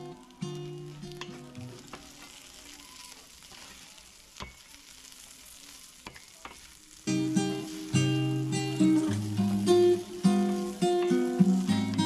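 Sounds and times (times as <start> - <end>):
acoustic guitar music: 0.0 - 2.0, 7.0 - 12.0
food sizzling in a frying pan: 0.0 - 12.0.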